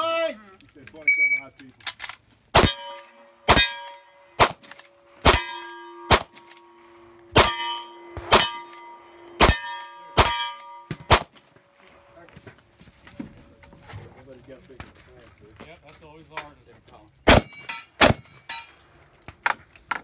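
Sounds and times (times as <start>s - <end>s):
rifle shots: 2.6s - 6.6s, 7.3s - 8.8s, 9.4s - 11.4s, 17.3s - 18.3s
steel target ringing: 2.6s - 11.4s, 17.3s - 18.8s.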